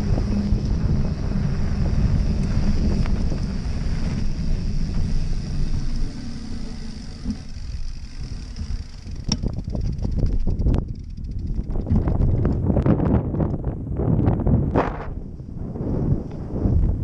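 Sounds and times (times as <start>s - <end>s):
bike clicks and knocks: 0.0s - 13.6s
bike tyres rumbling on dirt: 0.0s - 17.0s
wind buffeting microphone: 0.0s - 17.0s.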